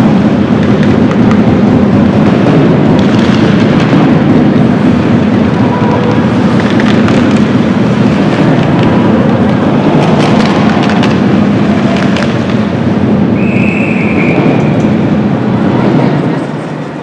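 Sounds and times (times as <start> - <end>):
crowd noise: 0.0 - 17.0
sharp knocks and clacks: 6.4 - 7.8, 8.4 - 12.8
high whistle blast: 13.3 - 15.0.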